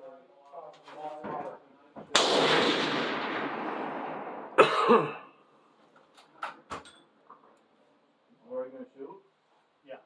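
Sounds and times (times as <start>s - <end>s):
rifle shot echoing: 2.1s - 4.6s
loud cough: 4.6s - 5.4s.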